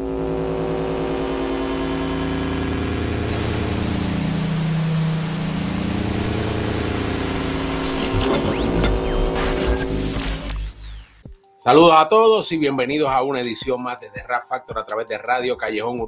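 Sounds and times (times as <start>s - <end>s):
low engine-like drone: 0.0s - 11.2s
static hiss: 3.3s - 11.3s.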